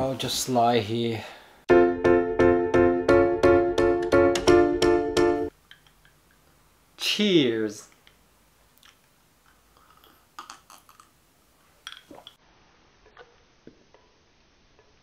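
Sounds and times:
man drinking from a glass: 9.7s - 11.1s.

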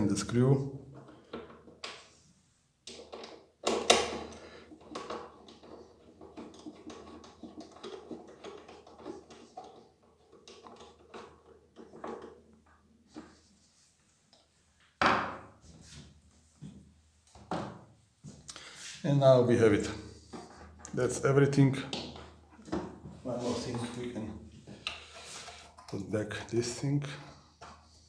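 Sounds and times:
plastic cover clicking and rubbing: 2.8s - 13.4s.

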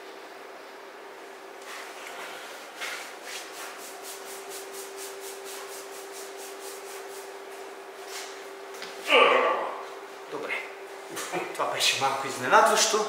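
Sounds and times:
hands rubbing skin: 1.6s - 8.3s.

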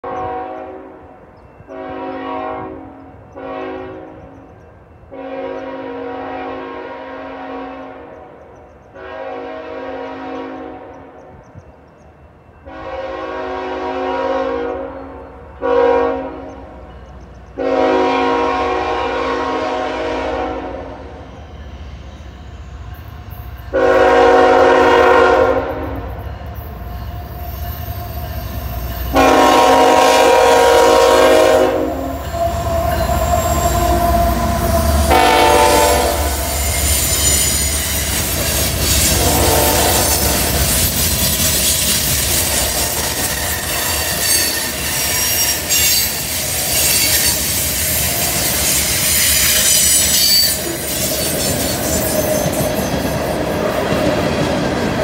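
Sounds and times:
locomotive air horn blasts: 0.0s - 4.3s, 5.1s - 11.1s, 12.6s - 16.8s, 17.6s - 21.2s, 23.7s - 26.2s, 29.1s - 38.0s, 38.8s - 40.6s
diesel locomotive rumble: 16.5s - 49.6s.

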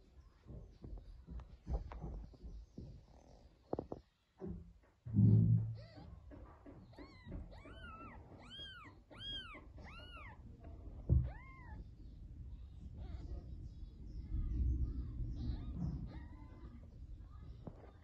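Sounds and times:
kittens mewing: 6.9s - 10.4s, 11.1s - 11.9s.

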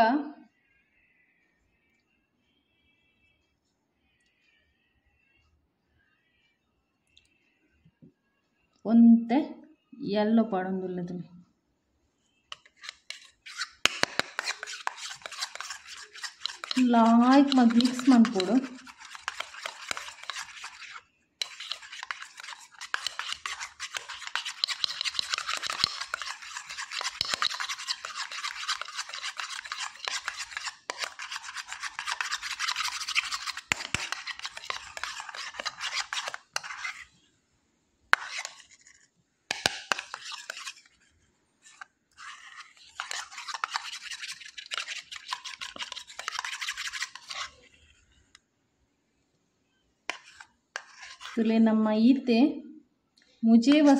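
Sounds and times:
spoon scraping paste in bowl: 12.5s - 37.2s, 38.1s - 48.4s, 50.1s - 51.6s, 53.5s - 53.9s.

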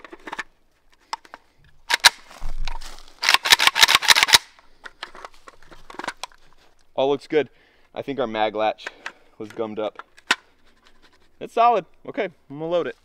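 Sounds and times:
rifle magazine metallic clicks: 3.2s - 4.6s.

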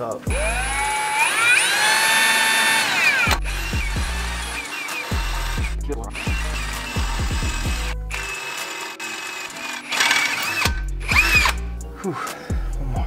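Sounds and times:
music with deep bass beat: 0.0s - 1.0s, 3.3s - 8.5s, 10.6s - 13.0s
drill boring through steel: 0.3s - 12.4s.

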